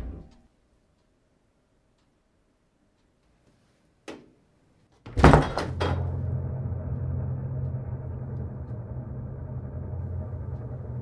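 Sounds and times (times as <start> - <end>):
steady low rumble: 5.2 - 11.0.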